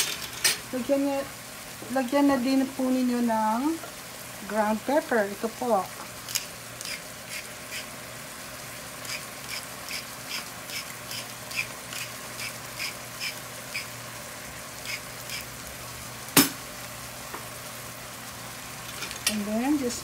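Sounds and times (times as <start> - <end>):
meat sizzling in a pan: 0.0 - 20.0
pepper mill clicking: 6.2 - 7.9, 9.1 - 13.9.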